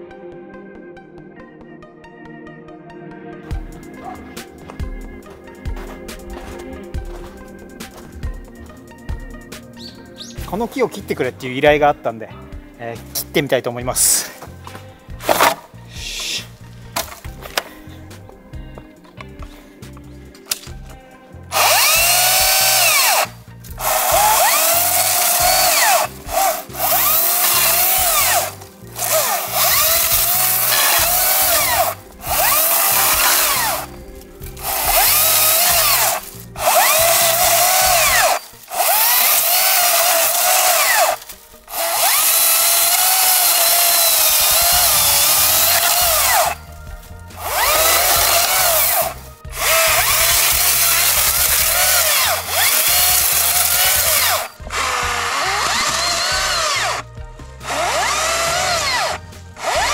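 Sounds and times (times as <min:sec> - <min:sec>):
electric chainsaw cutting wood: 0:15.2 - 0:15.6, 0:21.5 - 0:46.8, 0:47.4 - 0:59.9.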